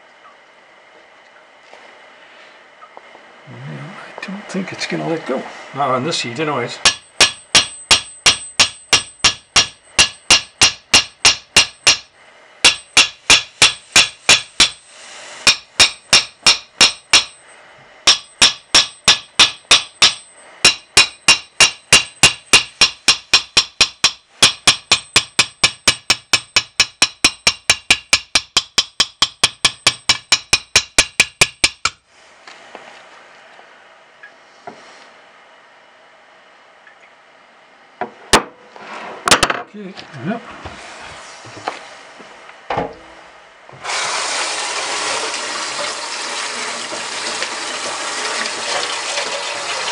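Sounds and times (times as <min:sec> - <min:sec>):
hammer blows on metal: 0:15.4 - 0:32.0.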